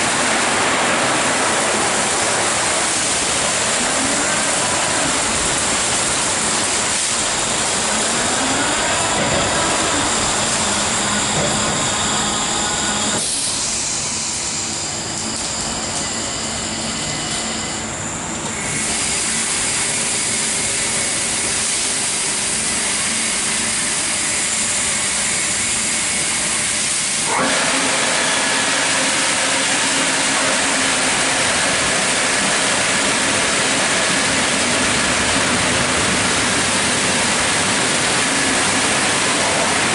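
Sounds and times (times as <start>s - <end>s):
car wash spraying water: 0.0s - 11.0s, 26.3s - 39.9s.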